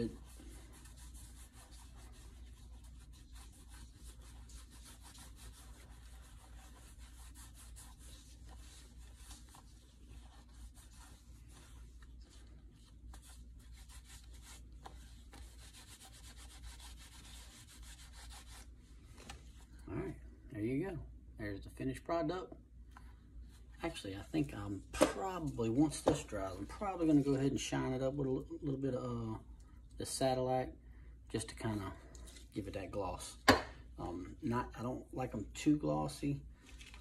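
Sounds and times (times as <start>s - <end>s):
cloth rubbing on leather: 0.0s - 20.1s.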